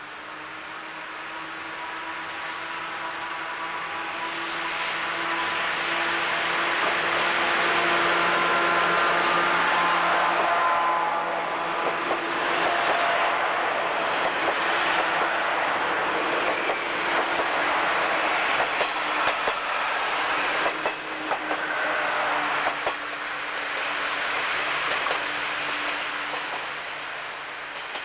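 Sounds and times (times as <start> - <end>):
wheels clicking over rail joints: 24.8 - 26.7, 27.7 - 28.0.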